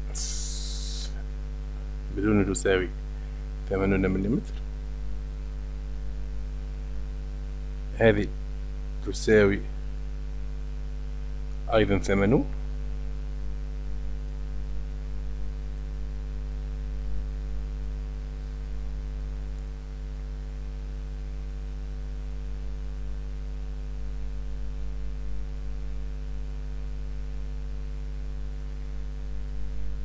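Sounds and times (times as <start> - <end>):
light hiss: 0.0 - 1.9
electrical mains hum: 0.0 - 30.0.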